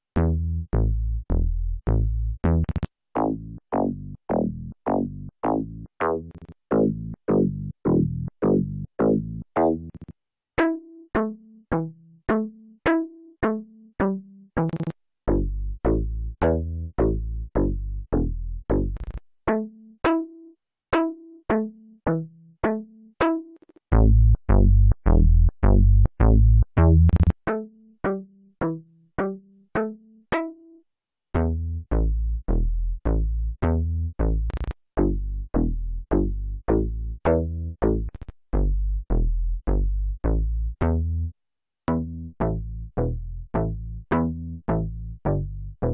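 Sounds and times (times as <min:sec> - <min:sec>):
synthesizer bass notes: 0:00.2 - 0:10.1, 0:14.6 - 0:19.2, 0:23.9 - 0:27.4, 0:31.4 - 0:41.3, 0:41.9 - 0:45.9.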